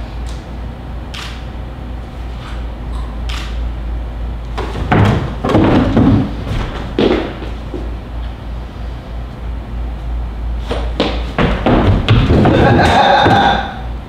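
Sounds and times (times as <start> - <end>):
low hum: 0.0 - 14.0
wooden chairs knocking: 4.6 - 7.8, 11.0 - 13.8
footsteps on wooden stage: 4.6 - 8.0, 10.7 - 13.6.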